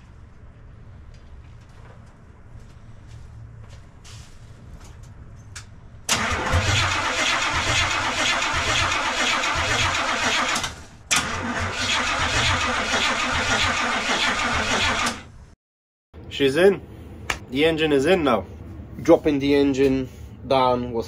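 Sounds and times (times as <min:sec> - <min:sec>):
starter cranking engine: 0:06.1 - 0:15.3.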